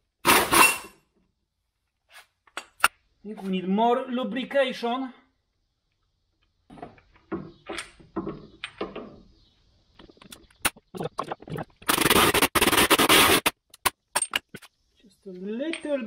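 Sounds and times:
pneumatic impact wrench: 0.2s - 1.0s, 11.9s - 13.6s
tools clicking and scraping: 11.9s - 14.8s.

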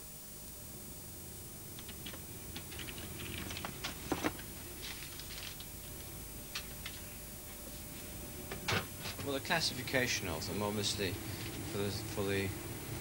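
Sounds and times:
paper envelope rustling: 2.7s - 5.7s.

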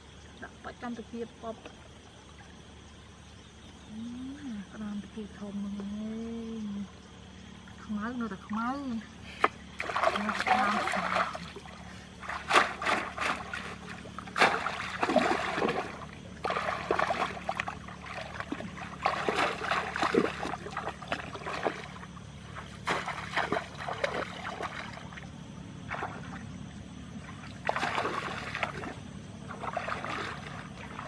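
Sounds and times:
muddy water splashing: 7.6s - 31.0s.

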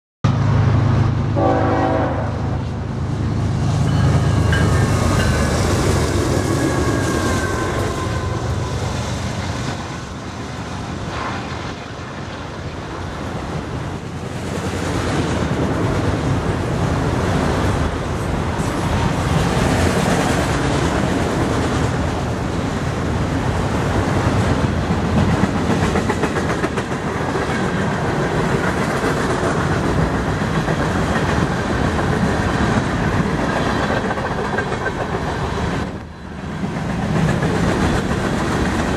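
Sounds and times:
diesel locomotives rumbling: 0.2s - 38.9s
train horn blast: 1.3s - 2.8s
steel wheels clickety-clack: 13.5s - 38.9s.

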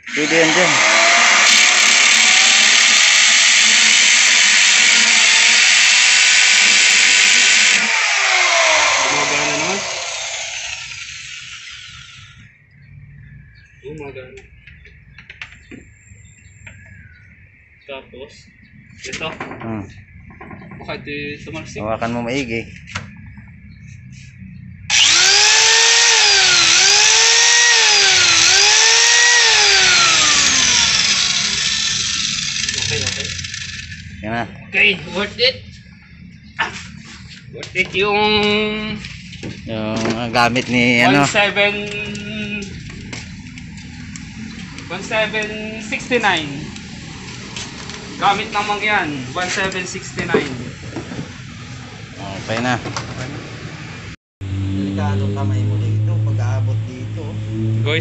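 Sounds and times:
electric drill boring into panel: 0.0s - 12.3s, 24.9s - 34.0s
angle grinder motor whining: 0.0s - 12.5s, 24.9s - 34.2s.

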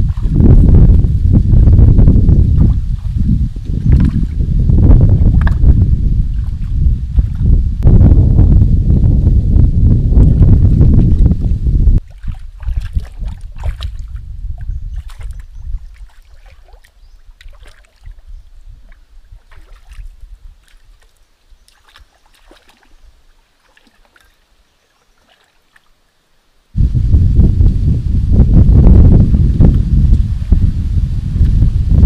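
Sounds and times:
wind rumble on microphone: 0.0s - 23.2s, 26.8s - 32.0s
hands splashing in water: 12.0s - 24.4s, 25.0s - 26.0s
water dripping: 12.0s - 26.0s.

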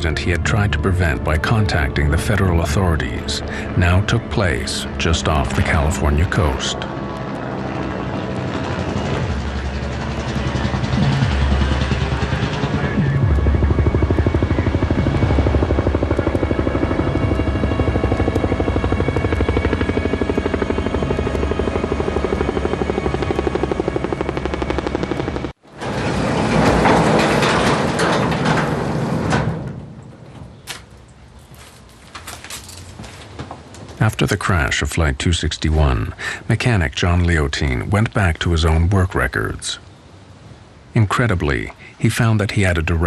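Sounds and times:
helicopter rotor chopping: 0.0s - 26.4s.

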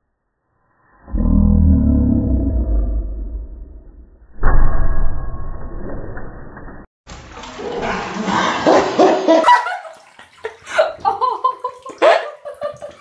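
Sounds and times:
water splashing: 7.1s - 13.0s.

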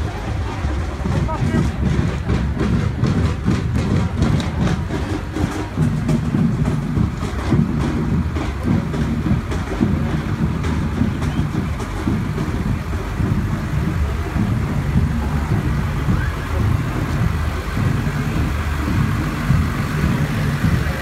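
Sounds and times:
tractor diesel engine rumbling: 0.0s - 21.0s.

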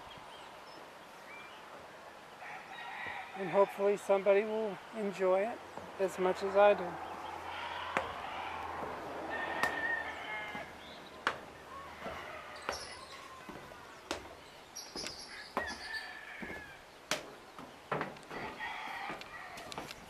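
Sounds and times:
bird calls: 4.8s - 20.0s
footsteps on concrete stairs: 5.7s - 6.5s, 7.1s - 20.0s.

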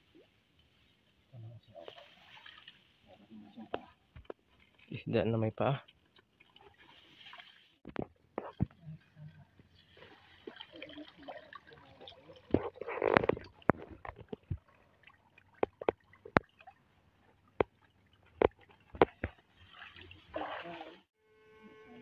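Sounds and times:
hands splashing in muddy water: 18.5s - 21.0s.

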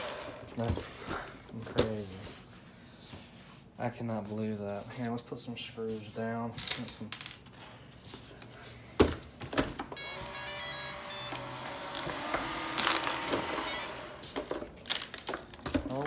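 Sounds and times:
start-up beep tune: 10.0s - 12.0s, 13.5s - 14.2s
vacuum suction motor running: 10.0s - 14.4s.

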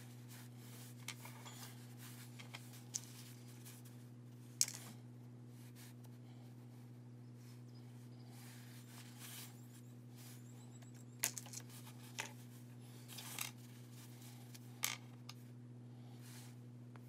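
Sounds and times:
low electrical hum: 0.0s - 17.0s
craft pieces rustling: 1.0s - 3.9s, 11.2s - 12.4s.

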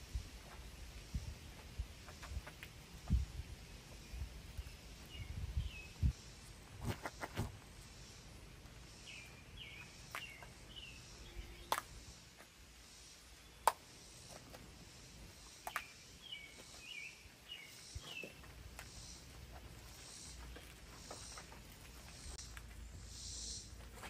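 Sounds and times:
small birds chirping: 0.0s - 24.0s.

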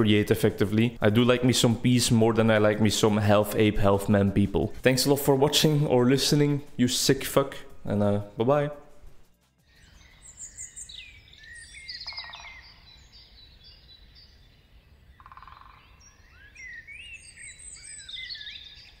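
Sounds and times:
songbirds chirping: 0.0s - 8.9s, 9.6s - 19.0s
buzzy bird trills: 9.6s - 13.1s.

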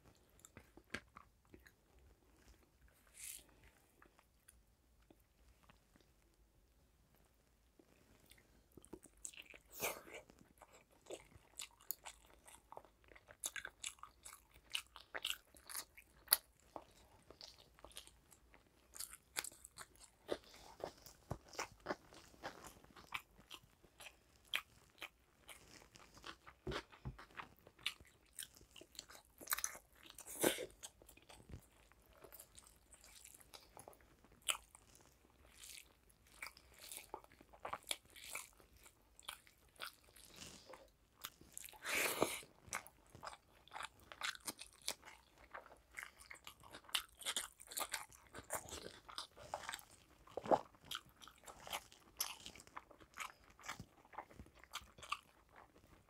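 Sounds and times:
chewing with wet mouth clicks: 42.6s - 56.0s.

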